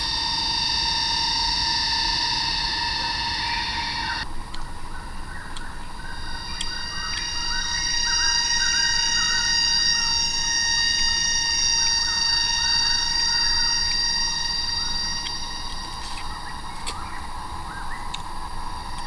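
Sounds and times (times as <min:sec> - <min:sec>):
high-pitched insect drones: 0:00.0 - 0:19.0
insects chirping: 0:00.0 - 0:19.0
faint clicks: 0:06.6 - 0:07.3.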